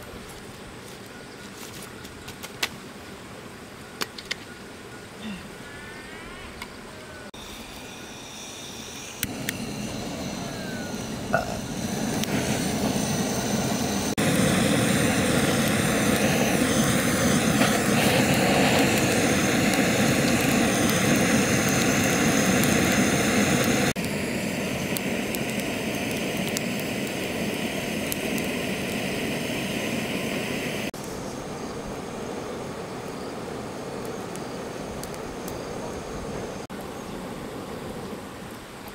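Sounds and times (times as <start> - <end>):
gas torch flame hissing: 7.4 - 36.6.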